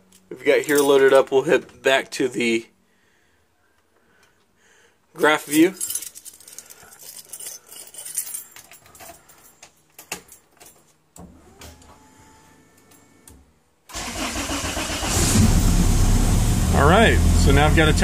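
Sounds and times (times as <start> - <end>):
keys jangling: 5.2 - 11.0
car engine starting and running: 13.9 - 18.0.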